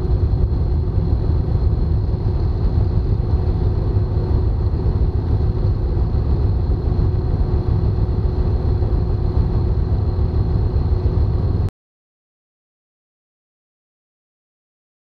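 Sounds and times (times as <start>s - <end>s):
aircraft engine and propeller drone: 0.0s - 11.7s.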